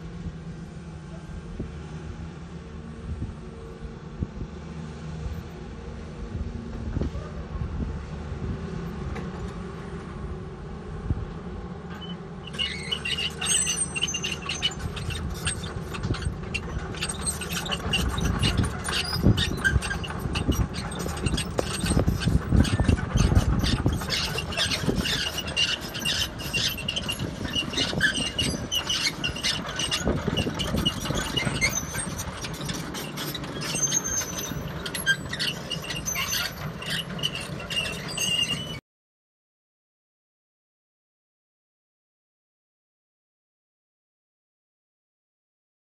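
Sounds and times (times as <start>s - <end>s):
diesel engine under load: 0.0s - 38.8s
high-pitched metal squeals: 11.9s - 38.8s.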